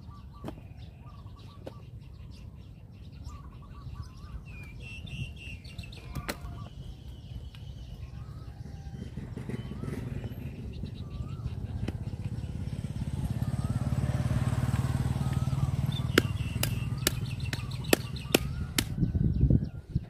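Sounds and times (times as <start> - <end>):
small motorcycle passing: 6.6 - 20.0.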